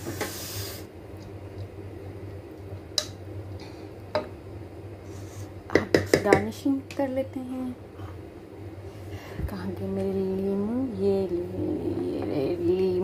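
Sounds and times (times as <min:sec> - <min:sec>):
steady low hum: 0:00.0 - 0:13.0
wooden spoon knocking on pot: 0:05.7 - 0:06.5.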